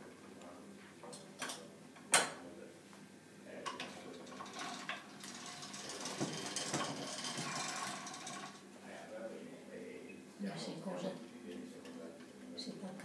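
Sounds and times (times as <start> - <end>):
metallic rattle of gears: 3.8 - 8.6
pasta machine clicking: 4.1 - 8.7.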